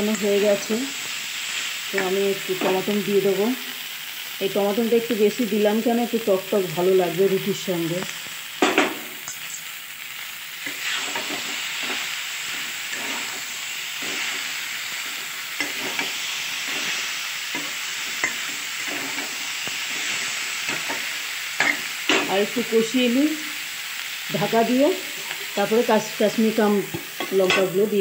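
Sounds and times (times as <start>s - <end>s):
food sizzling in a pan: 0.0s - 28.0s
steel spatula scraping a pan: 10.6s - 22.3s.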